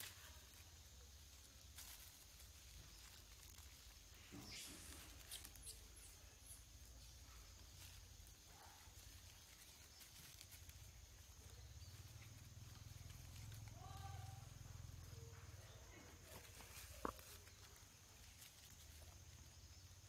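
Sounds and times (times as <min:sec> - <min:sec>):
steady high hiss: 0:00.0 - 0:15.2
faint high chirps: 0:00.0 - 0:20.0
light rustle: 0:00.0 - 0:20.0.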